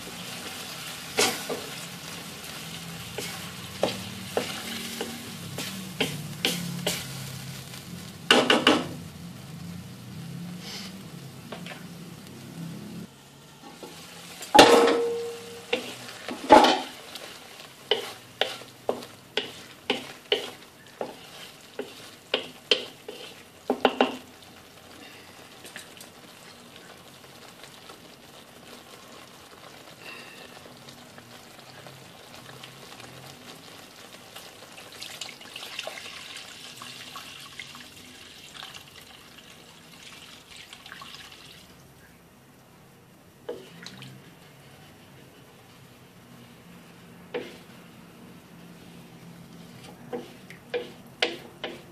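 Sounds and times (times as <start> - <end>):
wooden spoon stirring: 0.0 - 7.0, 13.7 - 24.3, 43.5 - 51.9
paste sizzling in a frying pan: 0.0 - 51.9
sharp taps on pan: 3.8 - 6.6, 8.3 - 8.9, 23.7 - 24.3, 50.1 - 51.9.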